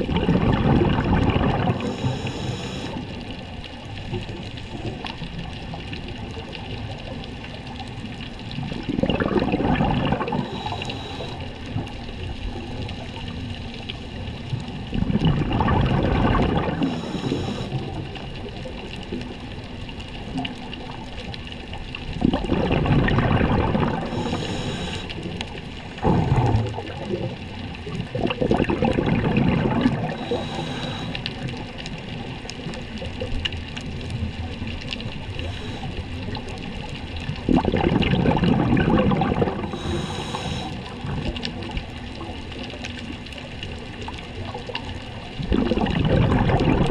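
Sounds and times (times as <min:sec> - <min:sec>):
exhaled bubbles underwater: 0:00.0 - 0:46.9
regulator inhale hiss: 0:01.8 - 0:03.2, 0:10.4 - 0:14.2, 0:16.8 - 0:18.0, 0:24.0 - 0:25.6, 0:30.1 - 0:31.6, 0:35.3 - 0:36.4, 0:39.6 - 0:41.0.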